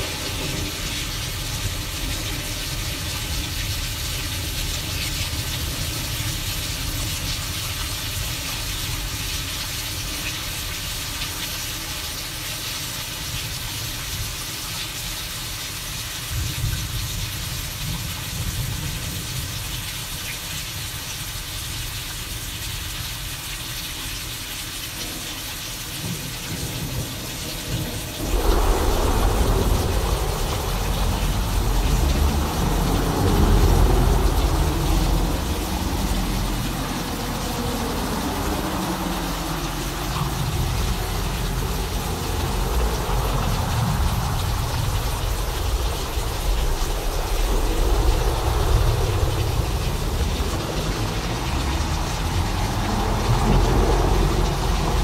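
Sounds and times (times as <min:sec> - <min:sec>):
rain hissing: 0:00.0 - 0:55.0
thunder rolling: 0:27.7 - 0:55.0
low rumble: 0:28.0 - 0:55.0.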